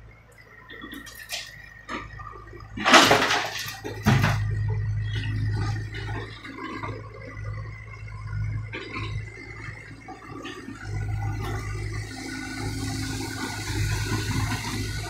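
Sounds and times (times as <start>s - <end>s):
excavator diesel engine humming: 0.0s - 15.0s
thin steady whine: 0.0s - 15.0s
asphalt clattering into truck bed: 2.8s - 4.8s
knocks of rubble: 2.8s - 6.9s.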